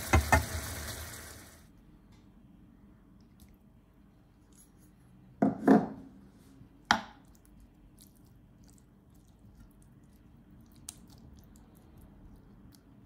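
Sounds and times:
tomatoes knocking into pan: 0:00.0 - 0:00.9.

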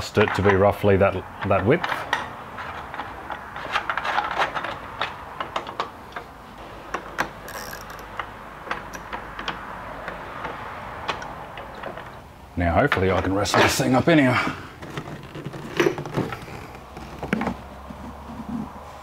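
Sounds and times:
metal brackets clicking: 0:06.9 - 0:12.3.

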